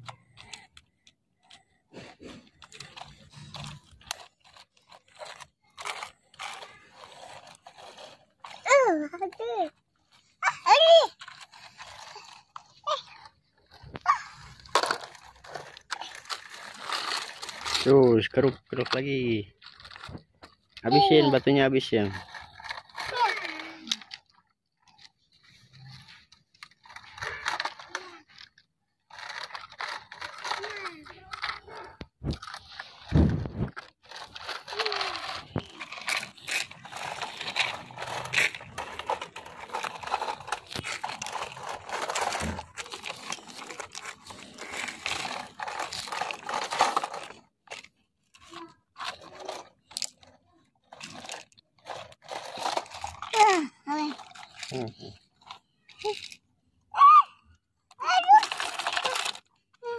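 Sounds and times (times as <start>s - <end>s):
toy bucket scraping gravel: 0.0s - 56.4s, 57.9s - 59.9s
pebbles clicking and crunching: 0.0s - 56.5s, 57.4s - 59.9s
gravel crunching and scraping: 29.1s - 50.2s.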